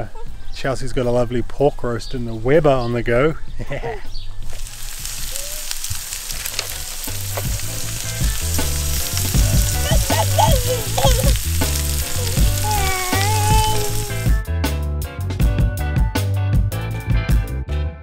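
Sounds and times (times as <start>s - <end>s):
meat sizzling on a grill: 4.4s - 14.4s
background music with bass line: 6.6s - 18.0s.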